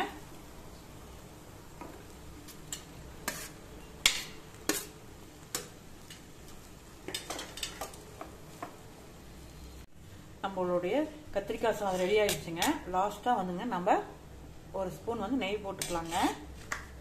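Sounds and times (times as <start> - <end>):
spatula stirring rice in a pan: 1.1 - 8.8, 11.8 - 12.8, 15.8 - 17.0
utensils scraping and knocking a pan: 2.7 - 5.0, 11.8 - 12.8, 15.8 - 16.4.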